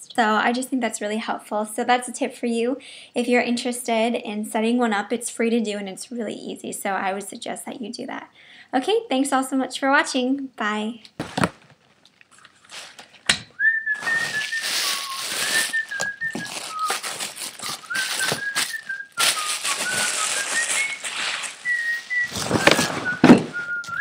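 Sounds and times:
tissue paper rustling: 12.6s - 13.2s, 14.0s - 24.0s
woman whistling a tune: 13.6s - 24.0s.

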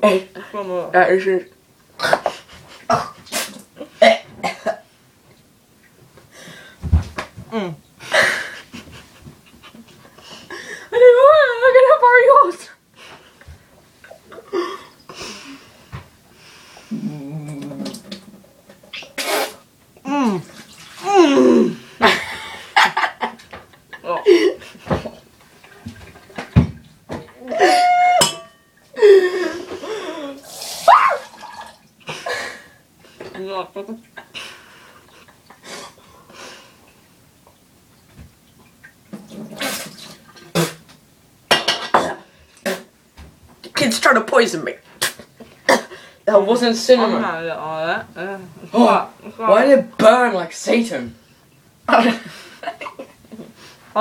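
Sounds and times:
people coughing and spluttering: 2.0s - 4.9s, 41.8s - 42.9s, 45.0s - 46.0s, 51.9s - 53.2s
man groaning: 16.9s - 18.0s, 21.1s - 21.8s.

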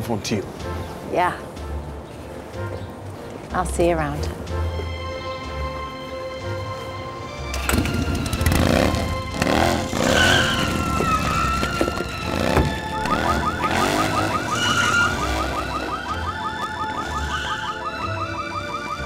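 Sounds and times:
motorcycle engine revving: 7.6s - 16.1s
car alarm chirping: 9.9s - 19.0s.

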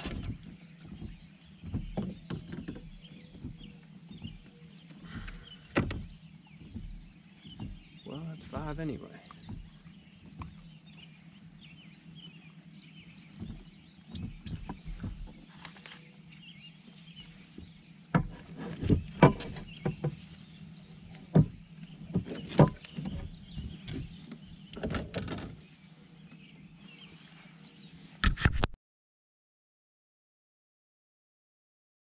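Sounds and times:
gear knocking on plastic kayak: 0.0s - 11.0s, 13.2s - 15.5s, 17.5s - 25.6s
steady low hum: 0.0s - 28.2s.

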